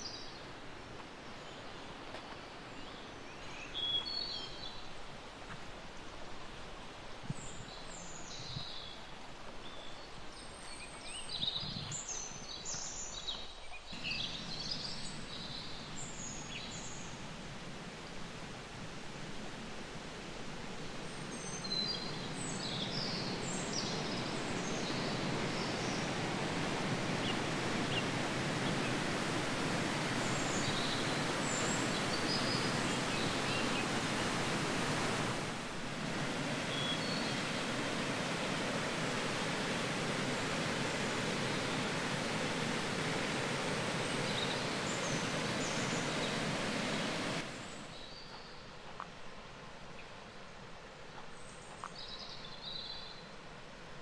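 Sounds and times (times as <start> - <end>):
small birds chirping: 1.2 - 5.0, 7.3 - 17.2, 29.9 - 35.2, 36.2 - 48.7
mountain water rushing: 13.9 - 48.1.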